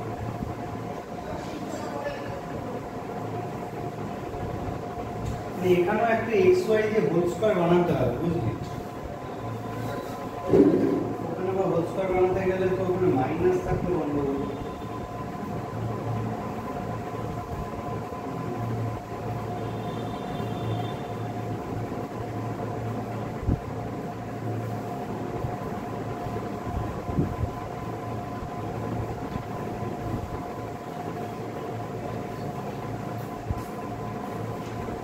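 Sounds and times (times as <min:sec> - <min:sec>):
steady whining tones: 0:00.0 - 0:35.0
low droning hum: 0:07.9 - 0:35.0
brief knocks: 0:10.5 - 0:11.2.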